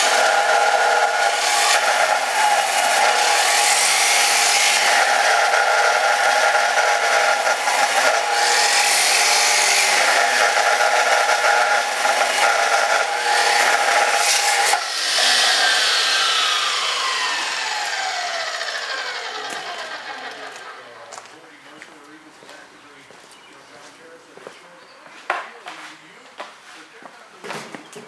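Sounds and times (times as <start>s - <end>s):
chop saw grinding through steel: 0.0s - 21.1s
motor winding down whine: 0.0s - 21.1s.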